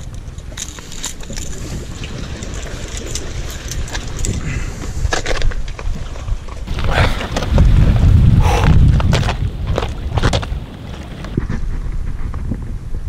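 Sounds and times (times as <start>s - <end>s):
metallic clicks and rustles: 0.0s - 4.4s
wind and water rumble: 0.0s - 13.0s.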